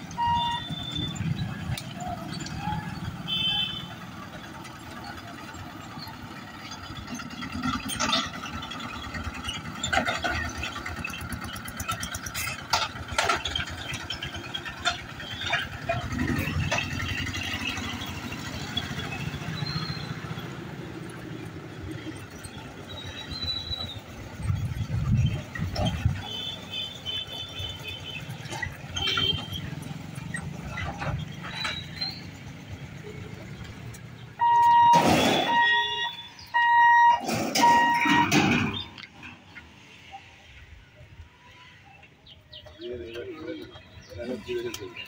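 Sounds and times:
vehicles clattering over rails: 0.0 - 41.3, 42.0 - 45.0
motorcycle and truck engines: 0.0 - 45.0
short high beep: 34.4 - 38.4.

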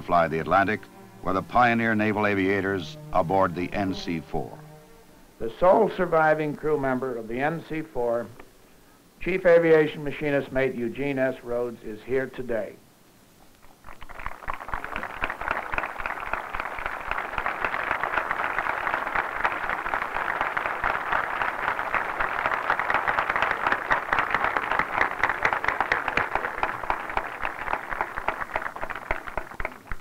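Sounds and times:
crowd applauding: 13.8 - 30.0.

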